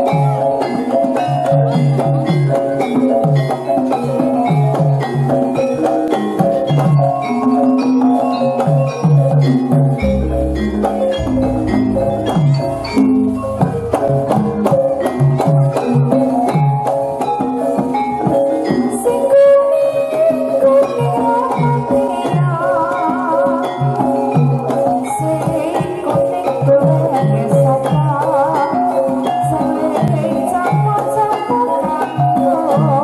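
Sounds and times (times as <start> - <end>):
gamelan ensemble playing: 0.0 - 33.0
deep low gong stroke: 10.0 - 14.6.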